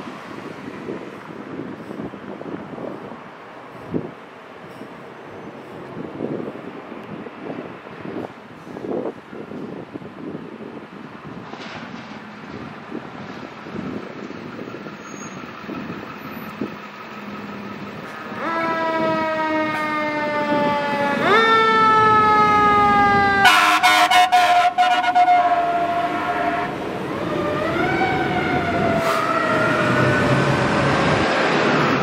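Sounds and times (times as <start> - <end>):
fire engine siren wailing: 13.4 - 32.0
loud horn blasts: 22.9 - 26.8.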